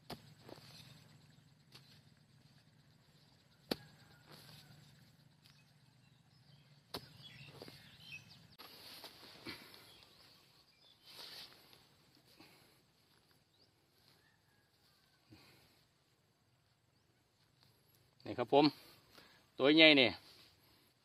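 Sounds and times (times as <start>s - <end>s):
earth scraping and rustling: 0.0s - 15.5s
digging tool knocks: 3.6s - 4.5s, 6.9s - 7.7s.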